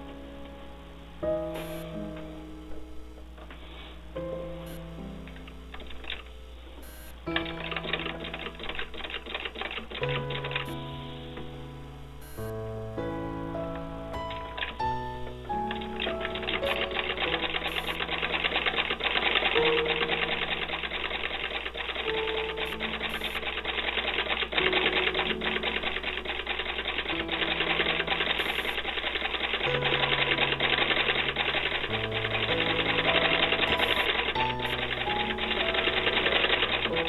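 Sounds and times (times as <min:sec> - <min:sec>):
music of slow held notes: 0:00.0 - 0:37.0
treadle sewing machine clatter: 0:15.7 - 0:37.0.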